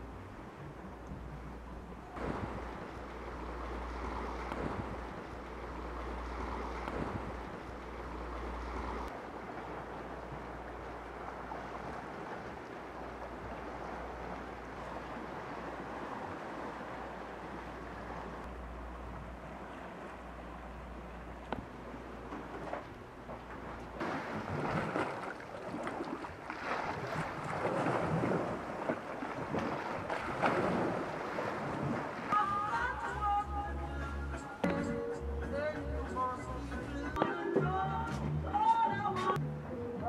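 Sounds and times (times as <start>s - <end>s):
wind rumbling on microphone: 0.0s - 33.4s
waves washing against rocky shore: 24.0s - 33.2s.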